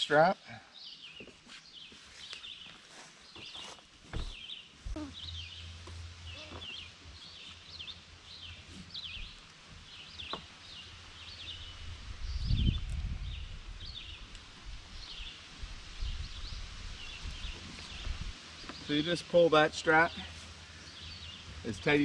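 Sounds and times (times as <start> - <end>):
songbird singing: 0.7 - 22.0
low thud: 4.1 - 5.0.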